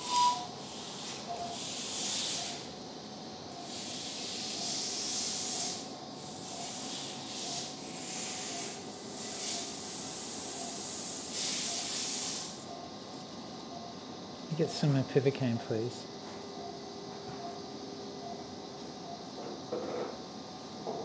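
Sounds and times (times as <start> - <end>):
electrosurgical pencil hissing: 0.0 - 2.7, 3.6 - 12.7.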